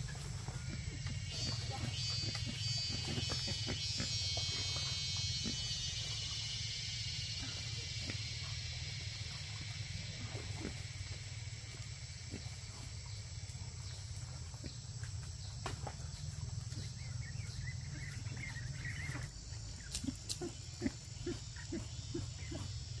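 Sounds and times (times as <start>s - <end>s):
steady low hum: 0.0s - 23.0s
wavering high animal chirp: 0.7s - 8.2s.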